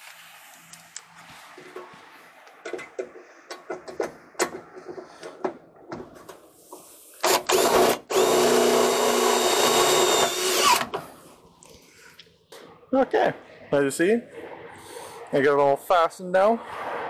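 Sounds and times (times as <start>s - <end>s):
cordless drill driving screws: 7.2s - 11.0s.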